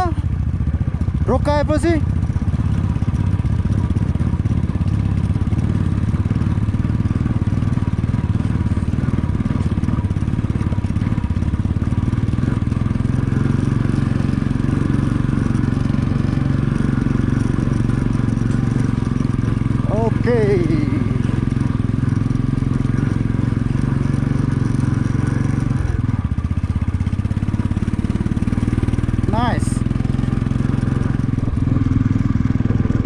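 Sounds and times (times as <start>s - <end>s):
motorcycle engine under load: 0.0s - 33.0s
person speaking: 19.8s - 21.2s, 29.3s - 29.8s.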